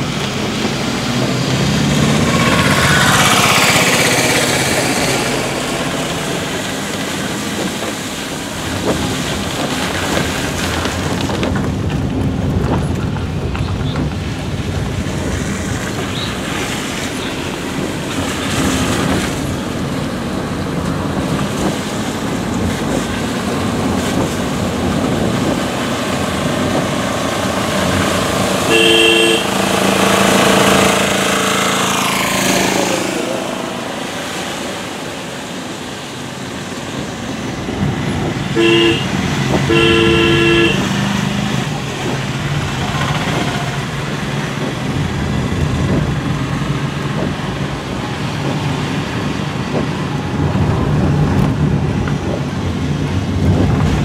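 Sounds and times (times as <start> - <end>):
rain: 0.0 - 54.0
vehicle engine and road noise: 0.0 - 54.0
vehicle horn honking: 28.6 - 30.8, 38.6 - 41.0.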